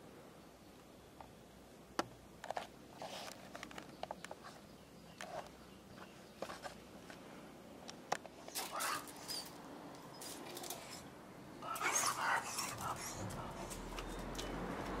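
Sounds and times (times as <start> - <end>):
dog moving on concrete: 8.4 - 15.0
metal chain leash clicking: 8.5 - 11.1.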